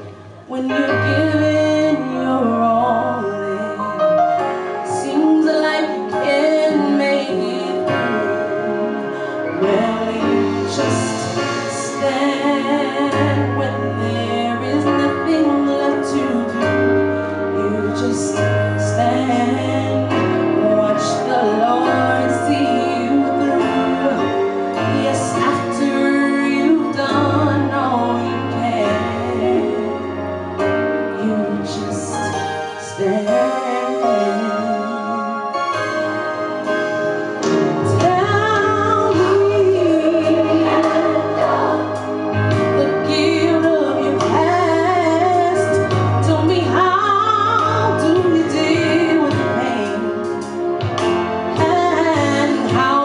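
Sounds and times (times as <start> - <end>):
woman singing gospel: 0.5 - 4.3, 4.9 - 30.1, 31.2 - 35.6, 37.9 - 50.4, 51.5 - 53.0
music with low bass: 35.6 - 53.0.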